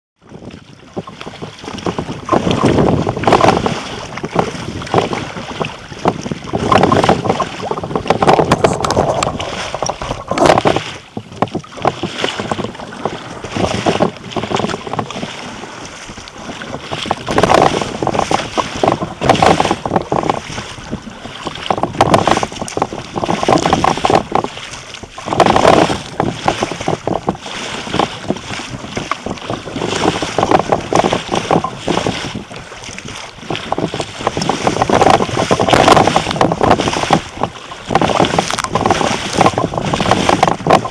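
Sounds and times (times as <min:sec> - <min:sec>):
water splashing against kayak: 0:00.2 - 0:40.9
wind buffeting microphone: 0:00.2 - 0:40.9.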